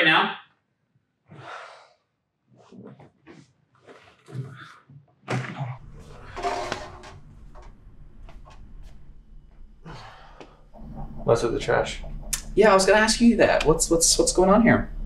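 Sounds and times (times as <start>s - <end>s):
steady low hum: 5.8s - 15.0s.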